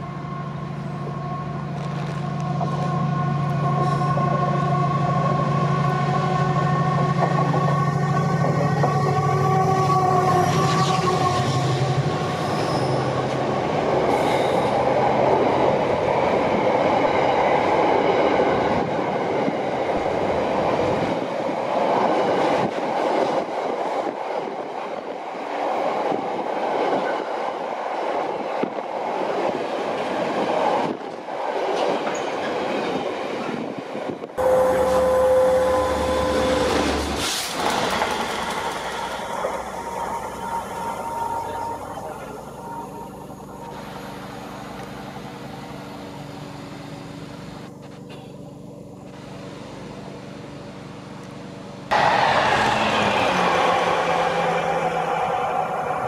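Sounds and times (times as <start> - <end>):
freight train rolling past: 0.0 - 47.8, 48.6 - 56.0
distant diesel locomotive: 34.2 - 56.0.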